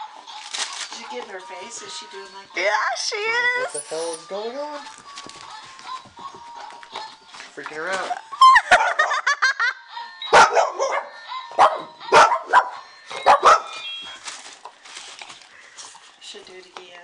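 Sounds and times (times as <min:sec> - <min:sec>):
toy chiming: 0:01.3 - 0:05.4, 0:09.8 - 0:14.6
dog barking: 0:10.3 - 0:13.8.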